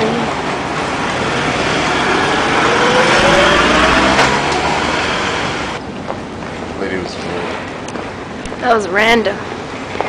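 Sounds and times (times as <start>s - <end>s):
vehicle passing by: 0.3s - 5.8s.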